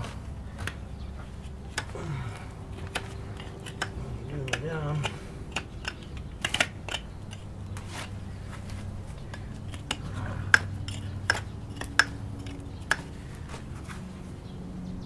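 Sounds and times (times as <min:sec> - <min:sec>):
knife paring hoof: 0:00.0 - 0:14.0.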